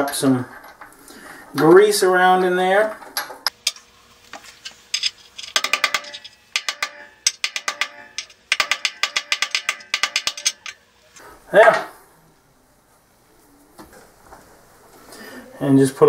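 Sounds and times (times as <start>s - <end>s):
hammer tapping metal socket: 5.0s - 10.8s.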